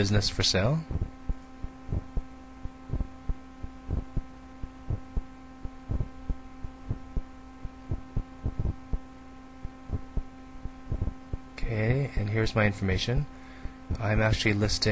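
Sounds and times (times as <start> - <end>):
electrical hum and buzz: 0.0 - 14.9
soft low thumps: 0.8 - 11.6.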